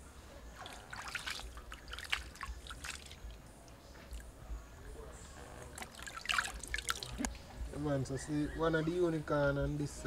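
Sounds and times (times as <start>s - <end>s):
water sloshing in steel bowl: 0.5s - 4.3s, 5.6s - 7.2s
water splashes: 0.5s - 4.3s, 5.6s - 7.3s
wet squishes: 0.6s - 4.3s, 5.6s - 7.3s.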